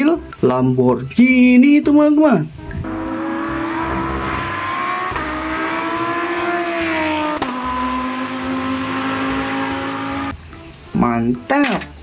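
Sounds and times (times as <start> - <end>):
race car engine revving: 2.8 - 10.3.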